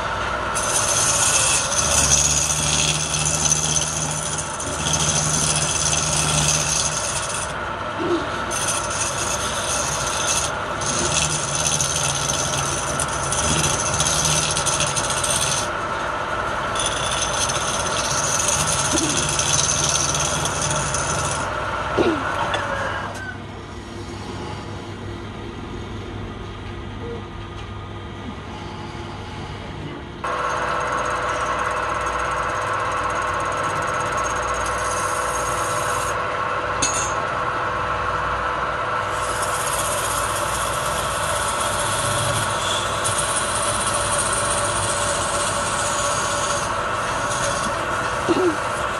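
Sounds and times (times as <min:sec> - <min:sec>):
lathe humming: 0:00.0 - 0:25.9, 0:28.4 - 0:48.9
gouge scraping wood: 0:00.5 - 0:07.6, 0:08.2 - 0:15.8, 0:16.6 - 0:21.6, 0:39.1 - 0:48.9.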